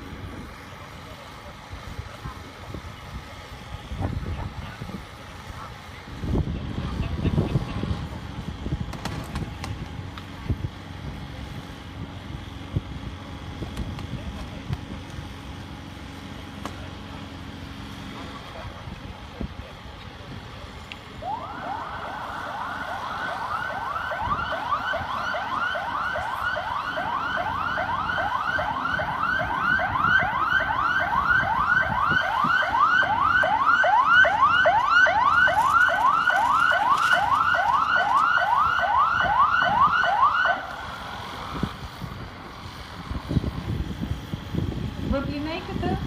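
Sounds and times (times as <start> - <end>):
emergency vehicle siren: 20.8 - 45.9.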